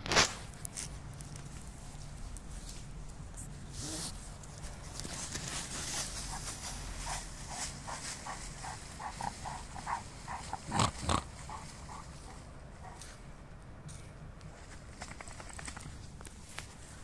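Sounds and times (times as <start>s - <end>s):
dog sniffing: 5.1s - 13.3s
dog snorting: 5.8s - 13.2s.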